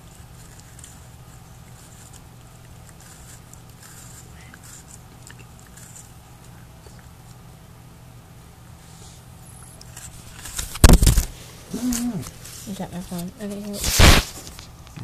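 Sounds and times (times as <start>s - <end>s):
puppy crunching an apple: 0.0s - 7.7s
steady low hum: 0.0s - 15.0s.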